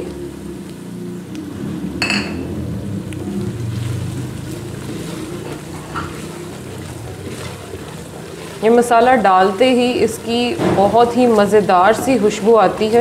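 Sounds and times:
low rough rumble: 0.0s - 12.7s
wooden spoon scraping a pot: 3.8s - 13.0s.

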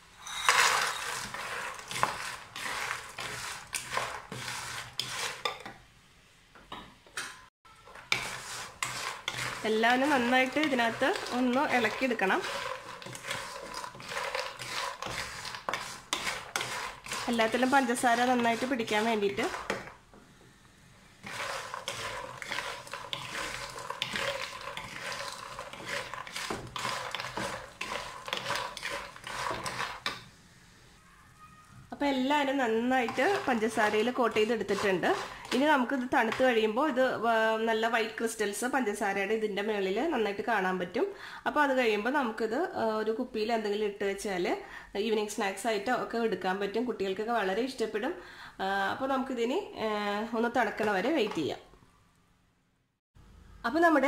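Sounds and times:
spatula scraping pan: 0.2s - 5.8s, 7.8s - 20.0s, 21.2s - 30.4s, 32.4s - 37.0s.

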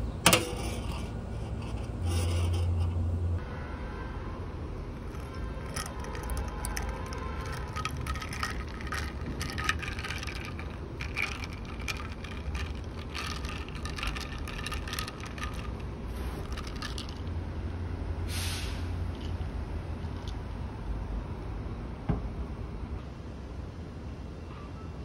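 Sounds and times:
distant traffic rumble: 0.0s - 25.0s
brief hiss: 18.3s - 19.0s.

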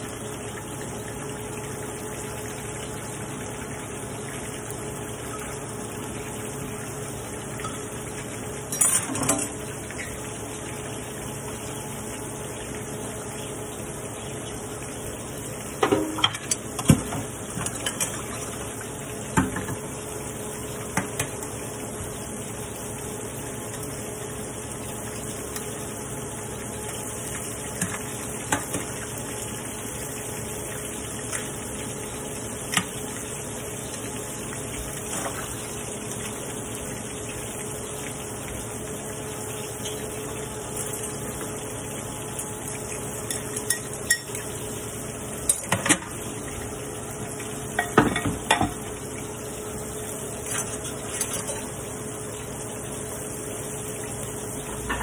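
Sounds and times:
shrimp sizzling in oil: 3.1s - 55.0s
glass dishes clinking: 8.7s - 9.6s.

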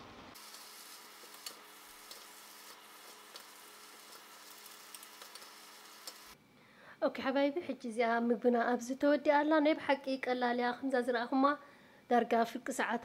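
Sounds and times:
noodles sizzling in a wok: 0.0s - 6.4s.

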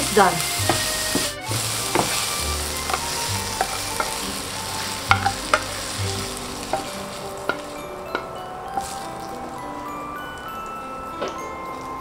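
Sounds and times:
food sizzling in a frying pan: 0.0s - 12.0s
wooden spatula scraping pan: 0.1s - 9.0s.

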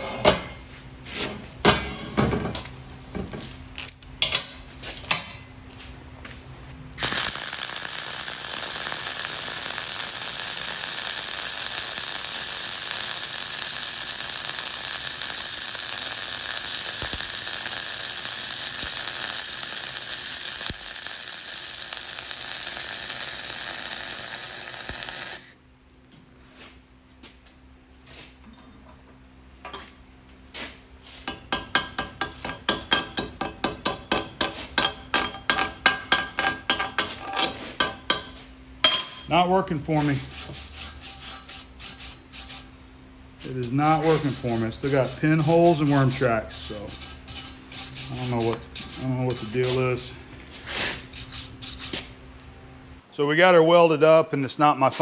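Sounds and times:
welding arc crackling: 7.0s - 26.0s, 39.8s - 42.7s, 43.4s - 52.2s.

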